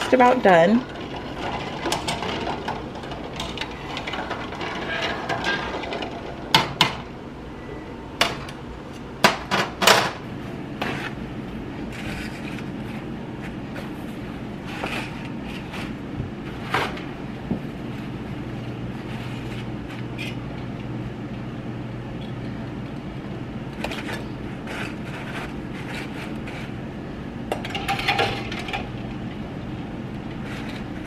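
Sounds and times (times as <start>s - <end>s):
water boiling in pan: 0.0s - 7.2s.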